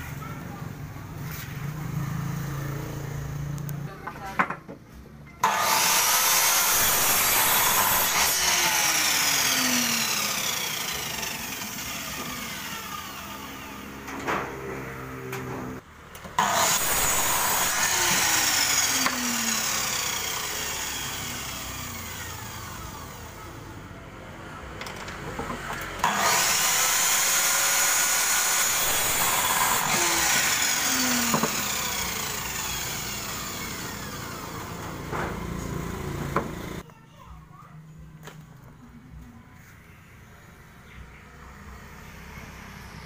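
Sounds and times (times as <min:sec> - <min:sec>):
saw blade winding down: 0:05.4 - 0:15.2, 0:16.4 - 0:23.4, 0:26.0 - 0:36.8
miter saw cutting wood: 0:05.4 - 0:15.4, 0:16.4 - 0:23.4, 0:25.9 - 0:36.8.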